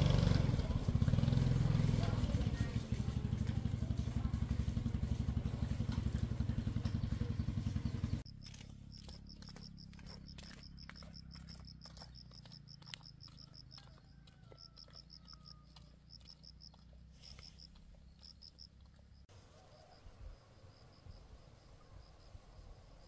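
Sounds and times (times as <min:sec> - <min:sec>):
insects chirping: 0:06.5 - 0:23.0.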